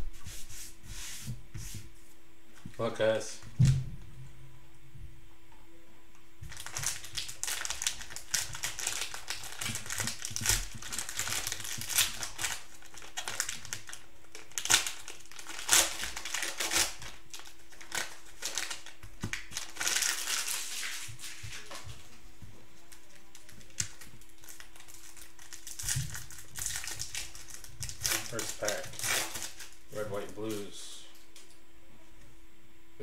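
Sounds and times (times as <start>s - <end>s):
cellophane wrapper crinkling and tearing: 6.4s - 21.7s, 22.8s - 30.7s.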